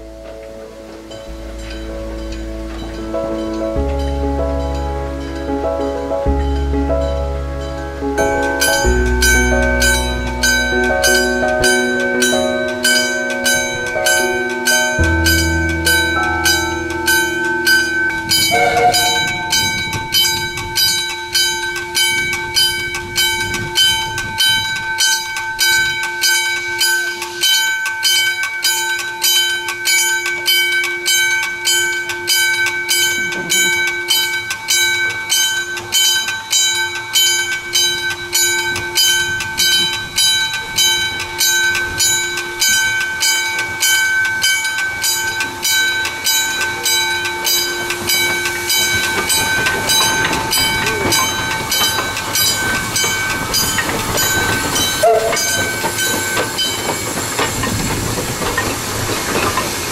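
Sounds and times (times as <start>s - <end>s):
held tones: 1.3s - 25.4s
steam locomotive chuffing: 8.2s - 30.0s, 33.0s - 59.9s.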